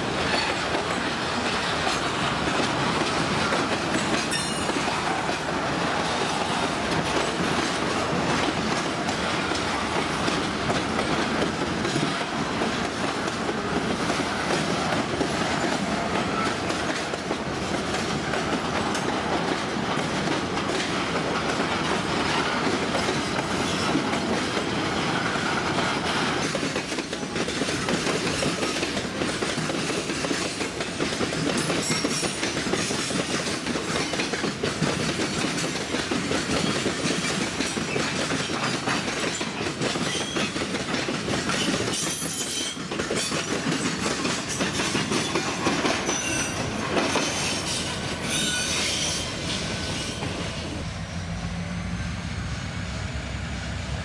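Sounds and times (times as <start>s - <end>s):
train wheels clattering over rails: 0.0s - 50.8s
high wheel squeal: 47.2s - 50.2s.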